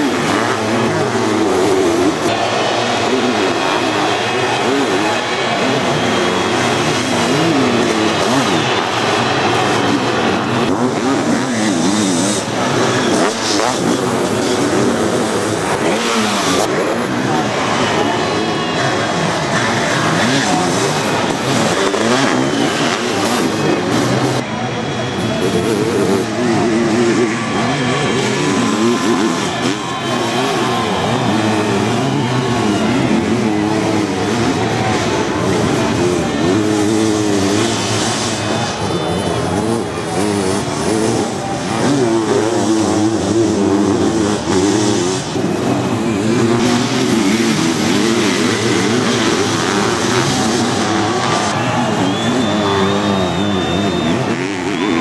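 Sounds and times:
motocross engines revving: 0.0 - 55.0.

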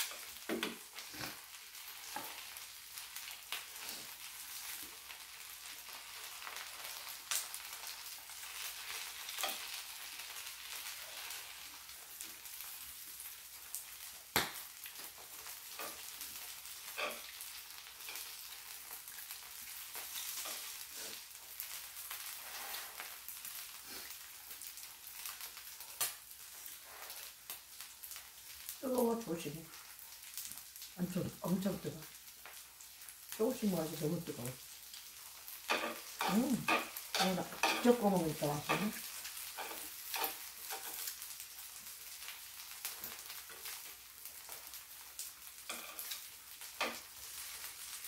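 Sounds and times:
pancake sizzling in oil: 0.0 - 48.0
chopsticks clicking and scraping pan: 8.6 - 10.4, 15.0 - 18.6, 20.0 - 21.2, 35.6 - 41.3, 45.6 - 47.7.

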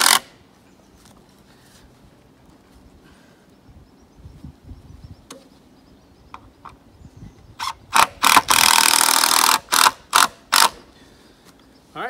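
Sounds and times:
power driver driving screw: 7.6 - 10.8.

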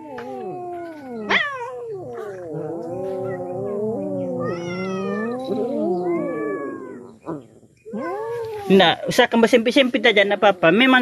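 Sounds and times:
cats yowling: 0.0 - 9.1
sharp rising meow: 4.2 - 7.1.

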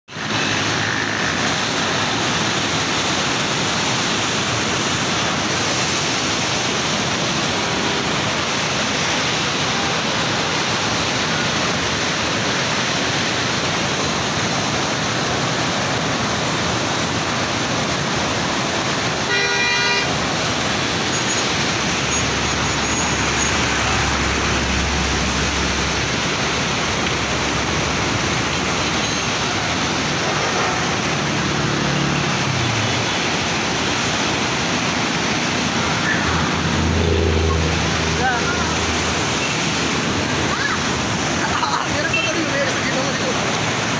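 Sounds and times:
floodwater rushing: 0.1 - 43.9
horn toot: 19.3 - 20.1.

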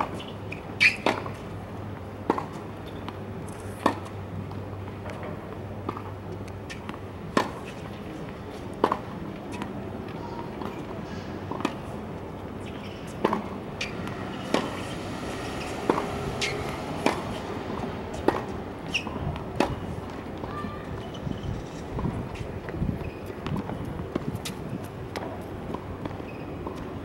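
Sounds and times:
tennis ball bouncing: 0.0 - 1.4, 2.2 - 5.3, 5.9 - 7.9, 8.8 - 10.9, 11.5 - 12.0, 12.6 - 20.5
tennis ball off racquet: 0.0 - 1.4, 3.5 - 4.1, 12.6 - 20.2.

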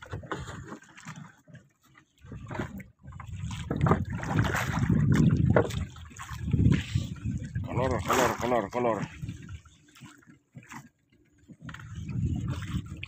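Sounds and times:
sea water noise: 0.0 - 13.0
rushing wind: 3.4 - 8.0, 11.8 - 13.0.

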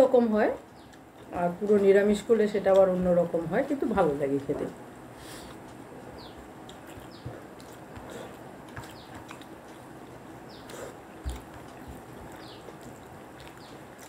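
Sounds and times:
chewing and lip smacks: 6.1 - 14.0.

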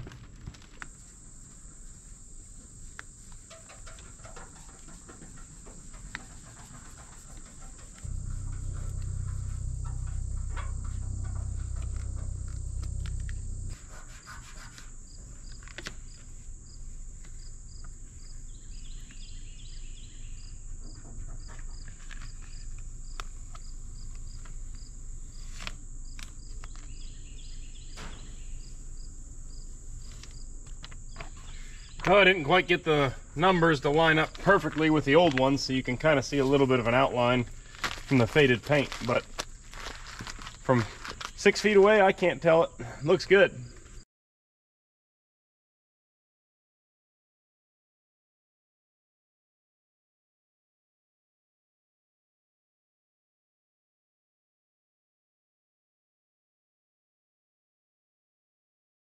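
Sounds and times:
insects singing: 1.3 - 14.1
low rumble: 8.0 - 13.9
decal paper crinkling and tapping: 37.6 - 41.4.

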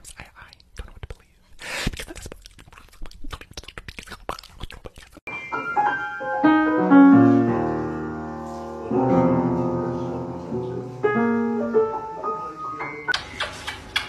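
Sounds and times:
piano note clusters ringing: 5.3 - 13.2.

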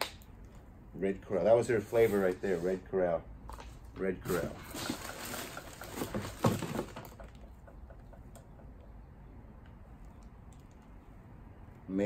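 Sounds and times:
plastic bags crinkling: 4.5 - 7.4.

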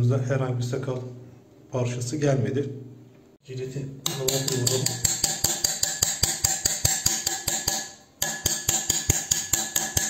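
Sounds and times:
rapid tapping on hard surface: 4.0 - 10.0.

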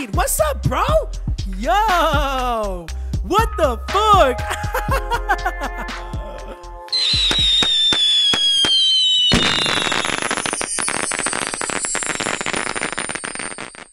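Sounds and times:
firework whistle falling: 6.9 - 13.9
firework bang: 7.1 - 13.9
dense crackling: 7.3 - 13.9.

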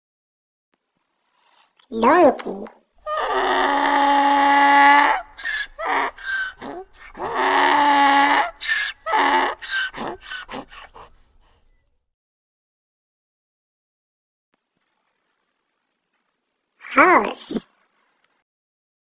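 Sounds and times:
donkey braying: 3.0 - 11.4.

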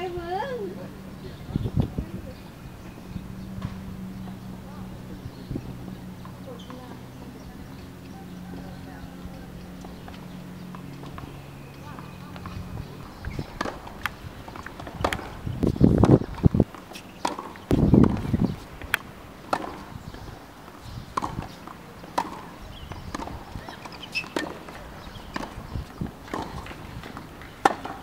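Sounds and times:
tennis ball struck and bouncing: 3.5 - 4.6, 9.4 - 28.0
sneaker squeaks: 6.1 - 7.1, 22.8 - 28.0.

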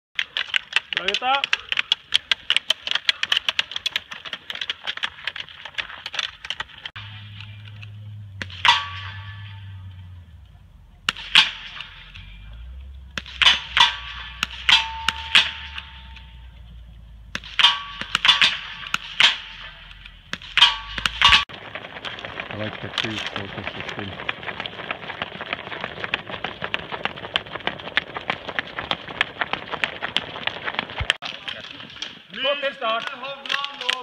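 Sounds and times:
ski pole tips clicking: 0.2 - 6.9
footsteps on gravel: 0.2 - 7.0, 21.0 - 34.0
steel targets clanging: 6.8 - 21.5.

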